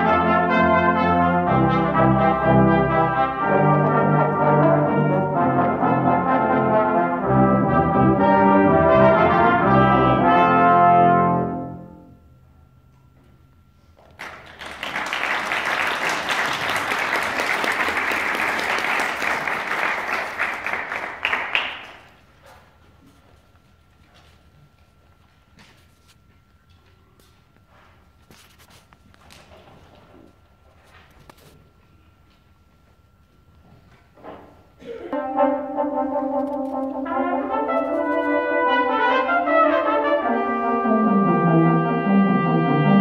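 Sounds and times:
brass quintet playing: 0:00.0 - 0:12.3, 0:35.1 - 0:43.0
audience applause: 0:14.2 - 0:22.2.

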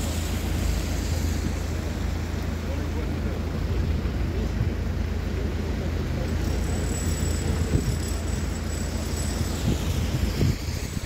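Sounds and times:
outdoor hiss: 0:00.0 - 0:05.8
wind buffeting microphone: 0:09.2 - 0:11.0.

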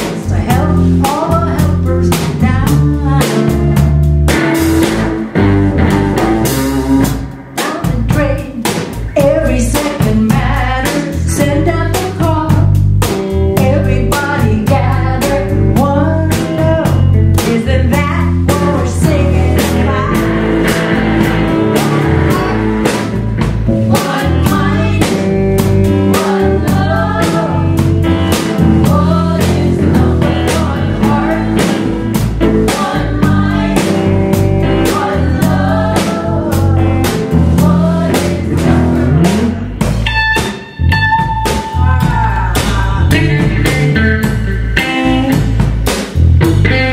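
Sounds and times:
live rock band playing: 0:00.0 - 0:46.9
voices singing: 0:13.6 - 0:39.8, 0:41.4 - 0:44.2.

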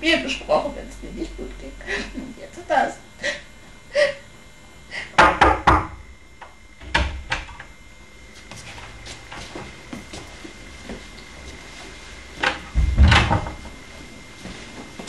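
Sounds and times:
girl sobbing: 0:03.2 - 0:04.2
door opening knocks: 0:05.2 - 0:06.0, 0:12.8 - 0:13.6.

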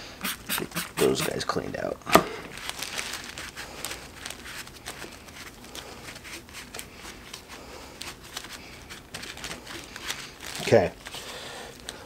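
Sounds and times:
plastic sheeting crinkling: 0:02.5 - 0:12.0.

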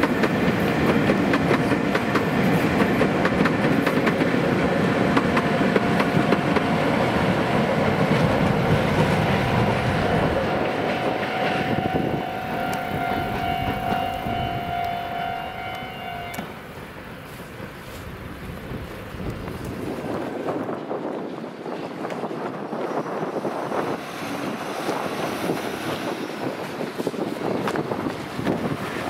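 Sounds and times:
train wheels rumbling and clattering: 0:00.0 - 0:29.0
steady high-pitched tone: 0:09.0 - 0:16.7.

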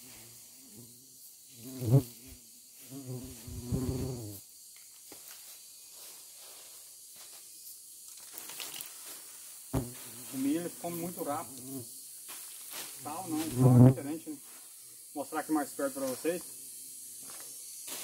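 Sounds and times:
flying insect buzzing close: 0:00.0 - 0:04.8, 0:09.6 - 0:15.2, 0:15.9 - 0:18.0
forest insects humming: 0:00.0 - 0:18.0.

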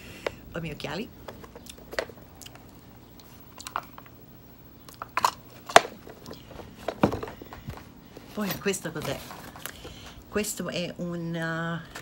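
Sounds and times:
soft rustling: 0:05.5 - 0:10.2.

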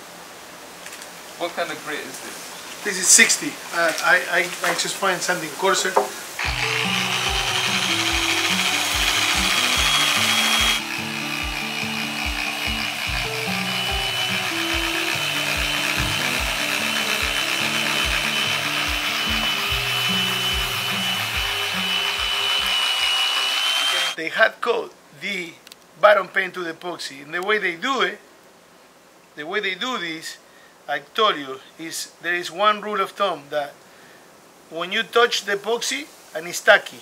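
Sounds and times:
power sander grinding: 0:06.0 - 0:24.2
background music with beat: 0:06.5 - 0:21.6.

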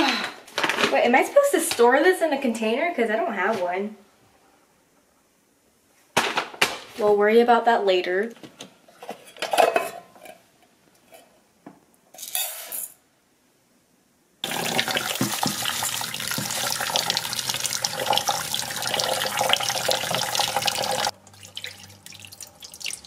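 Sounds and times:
tap water running into pot: 0:14.4 - 0:23.0.

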